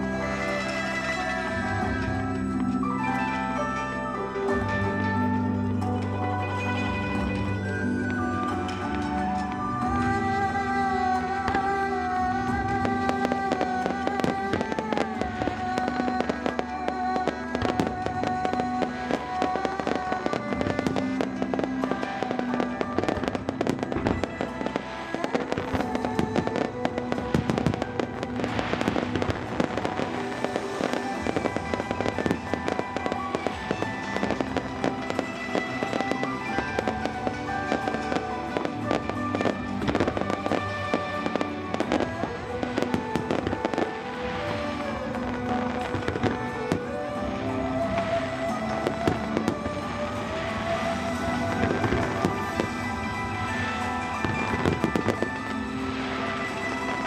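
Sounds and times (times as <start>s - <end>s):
fireworks bangs and crackling: 0.0s - 57.0s
music playing: 0.0s - 57.0s.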